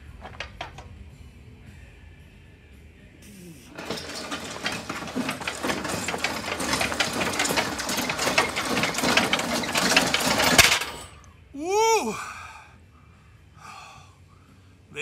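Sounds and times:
heavy metal frame clattering on gravel: 0:00.0 - 0:00.9, 0:03.7 - 0:11.2.

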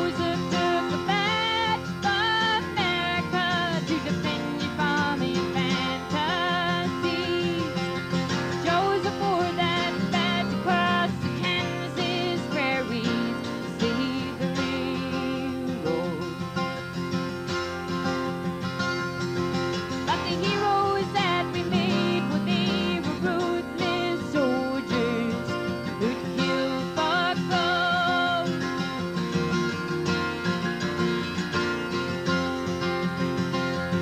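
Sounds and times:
woman singing: 0:00.0 - 0:16.4, 0:20.0 - 0:29.0
strummed acoustic guitar: 0:00.0 - 0:34.0.

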